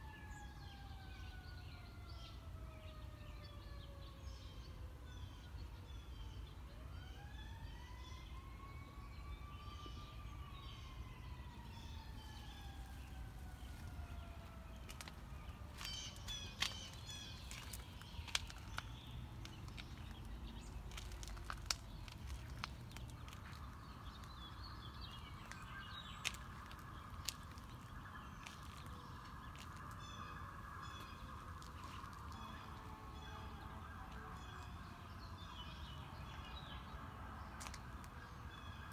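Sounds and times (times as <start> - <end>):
distant siren wailing: 0.0 - 38.9
birds chirping: 8.8 - 38.9.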